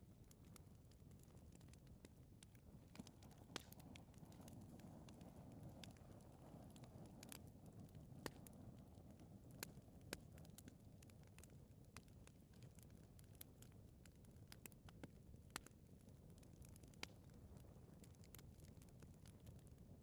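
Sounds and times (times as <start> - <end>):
fireplace fire crackling: 0.0 - 20.0.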